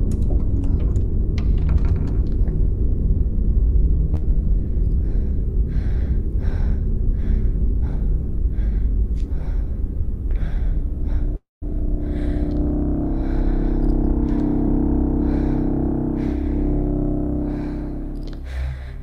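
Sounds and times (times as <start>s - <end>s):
low rumbling drone: 0.0s - 19.0s
person breathing rapidly: 4.4s - 19.0s.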